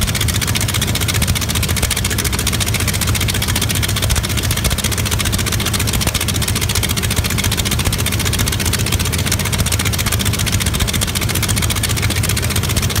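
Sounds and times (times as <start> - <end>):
radial aircraft engine idling: 0.0 - 13.0.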